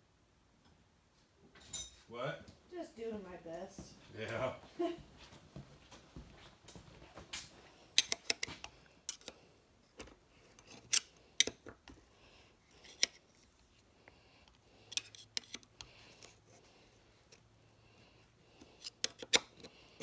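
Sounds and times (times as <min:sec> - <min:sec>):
metallic clicks and scrapes: 0:08.0 - 0:09.4, 0:12.7 - 0:13.4, 0:14.8 - 0:16.4.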